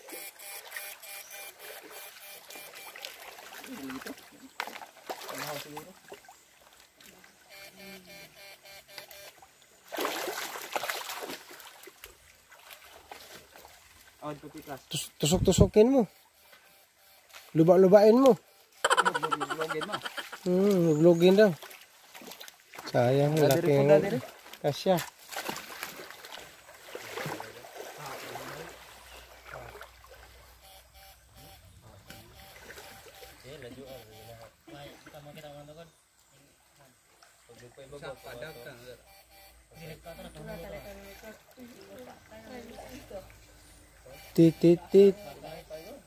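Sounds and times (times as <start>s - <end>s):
water splashing in stream: 0.0s - 35.5s, 40.1s - 45.1s.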